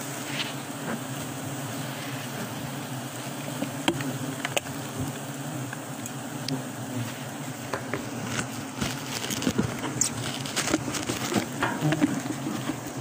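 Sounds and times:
honeybees buzzing: 0.0s - 13.0s
footsteps on dry leaves: 8.1s - 11.6s.

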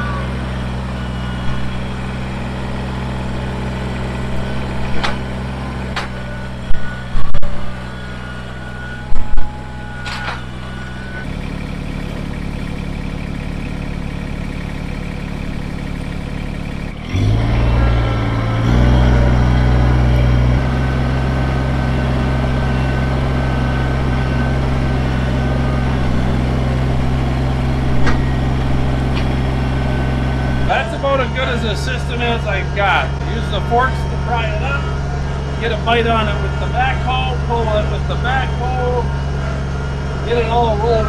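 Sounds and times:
tractor diesel engine running: 0.0s - 41.0s.

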